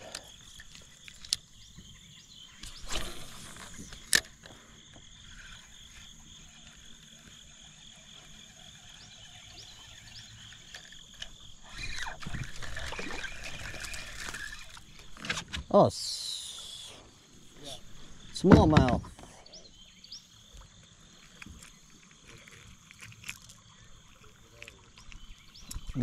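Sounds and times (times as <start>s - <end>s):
high-pitched wildlife chorus: 0.0s - 26.0s
water sloshing: 5.5s - 15.3s.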